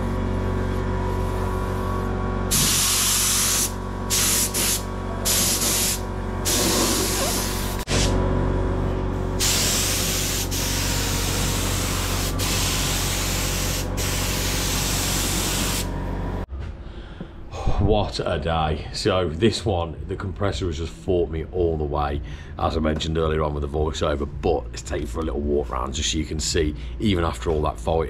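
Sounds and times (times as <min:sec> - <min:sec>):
air compressor hum: 0:00.0 - 0:17.7
spray gun hissing: 0:02.5 - 0:08.1, 0:09.4 - 0:15.9.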